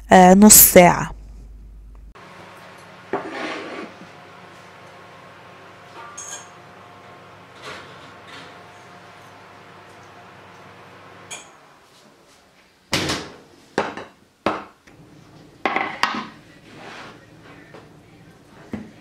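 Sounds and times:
cutting board set on wooden counter: 0:03.2 - 0:04.0.

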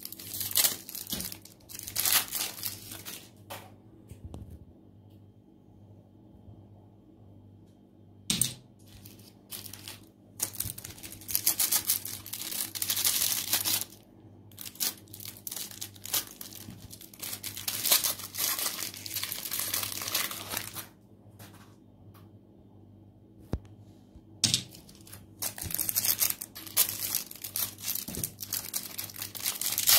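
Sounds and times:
cellophane wrapper crinkling: 0:00.0 - 0:03.4, 0:08.8 - 0:21.0, 0:24.6 - 0:29.9.

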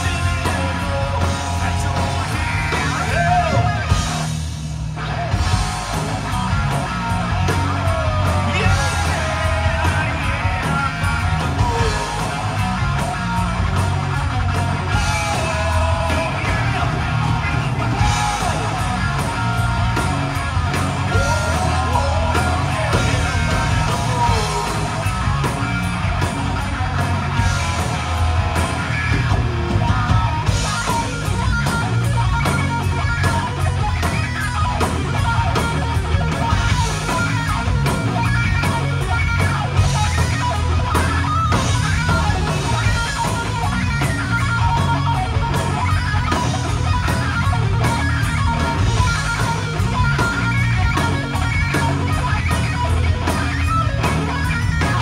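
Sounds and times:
lead singer vocals: 0:00.0 - 0:04.1, 0:07.4 - 0:12.6, 0:14.9 - 0:19.6, 0:21.0 - 0:25.3
bass guitar: 0:00.0 - 0:55.0
drum kit: 0:00.0 - 0:55.0
electric guitar: 0:00.0 - 0:55.0.

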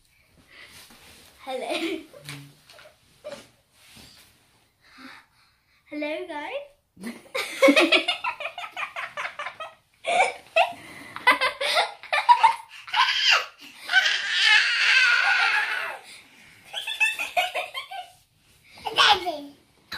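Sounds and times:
child laughing: 0:07.6 - 0:16.0, 0:16.7 - 0:18.2.

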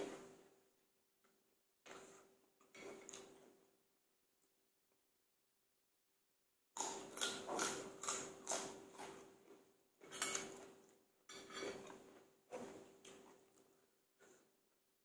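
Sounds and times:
crunchy chewing of raw vegetables: 0:06.8 - 0:14.7.

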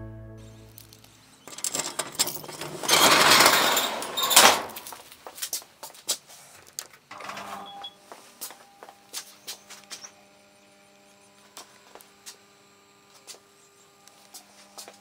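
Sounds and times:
electrical hum: 0:00.0 - 0:15.0
metal roller door rattling: 0:01.5 - 0:05.0, 0:07.1 - 0:07.8.

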